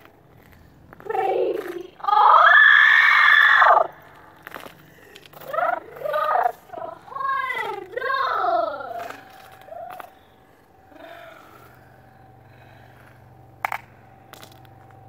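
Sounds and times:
high-pitched voice crying out: 1.1 - 3.9, 5.4 - 9.9.

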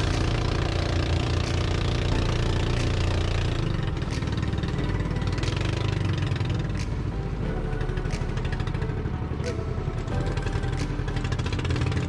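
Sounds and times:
boat motor running: 0.0 - 12.0.

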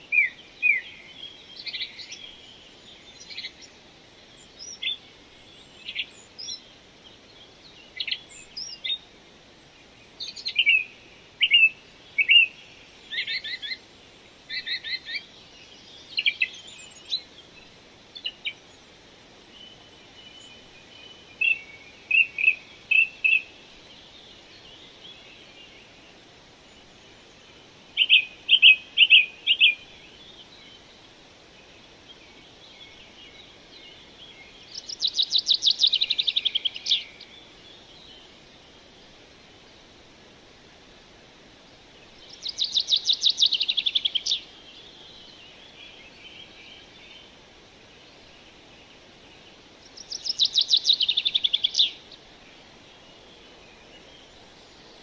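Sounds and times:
birds chirping: 9.9 - 40.0, 41.7 - 55.0.

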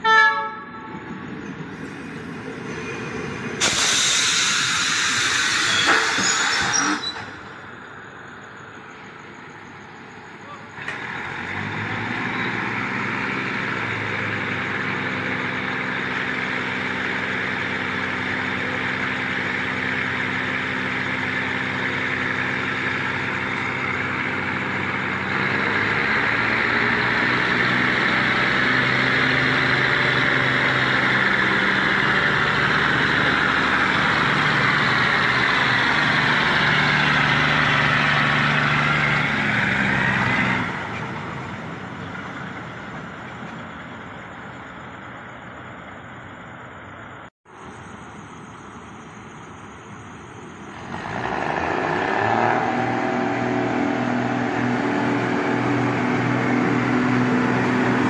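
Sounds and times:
diesel railcar engines idling: 0.0 - 50.8, 54.3 - 58.0
hiss of air: 3.5 - 7.0.

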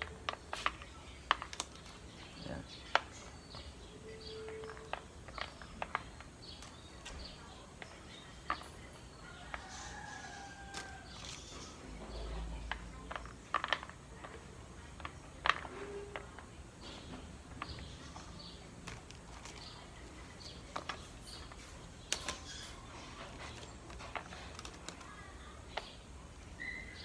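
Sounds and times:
peppercorns clicking in plastic bowl: 0.0 - 16.6, 17.5 - 26.8.

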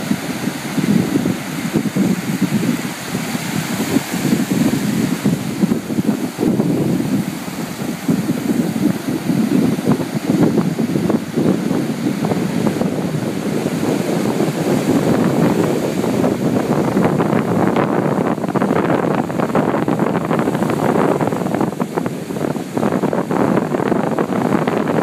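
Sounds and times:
ocean surf breaking on beach: 0.0 - 25.0
wind buffeting microphone: 0.0 - 25.0.

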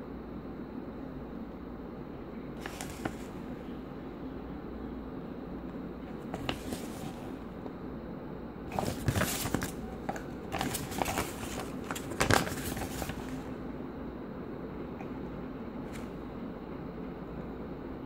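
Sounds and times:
steady low hum: 0.0 - 18.0
paper rustling: 2.6 - 3.5, 6.1 - 7.5, 8.7 - 13.6.

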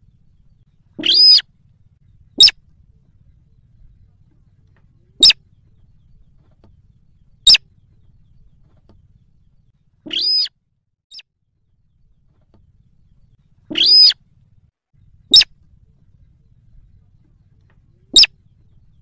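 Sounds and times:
rail bird calling: 0.0 - 8.7, 9.3 - 10.5, 13.1 - 14.2, 15.0 - 19.0.

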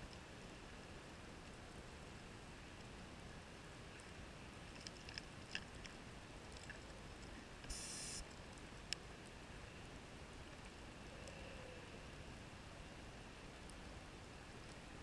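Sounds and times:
steady low underwater hiss: 0.0 - 15.0
short hiss: 7.6 - 8.2.

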